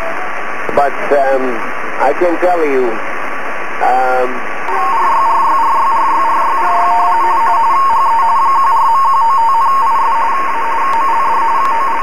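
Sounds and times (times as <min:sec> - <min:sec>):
radio band hiss: 0:00.0 - 0:12.0
two-tone radio data warble: 0:03.7 - 0:12.0.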